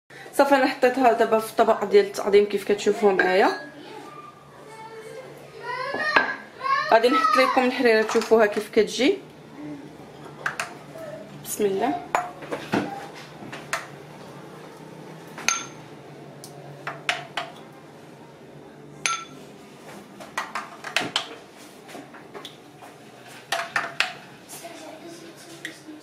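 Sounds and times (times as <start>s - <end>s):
ladle clinking against ceramic bowl: 15.5s - 15.8s, 19.0s - 19.4s.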